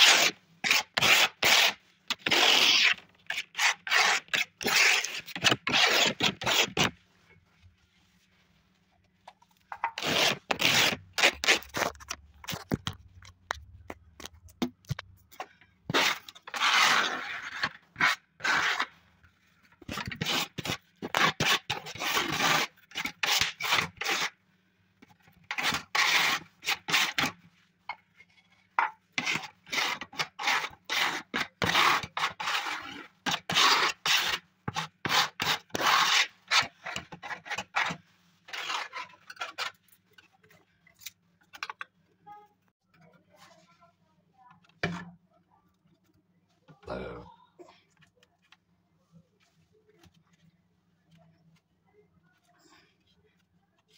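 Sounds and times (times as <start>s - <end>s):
plastic scraper rasping on board: 0.0s - 7.0s, 9.8s - 12.8s, 15.9s - 18.9s, 19.9s - 24.3s, 25.5s - 27.4s, 29.2s - 39.8s.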